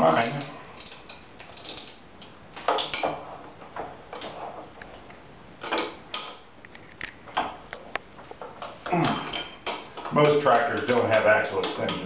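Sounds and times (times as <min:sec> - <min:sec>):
wrench clinking on bolts: 0:00.0 - 0:03.2.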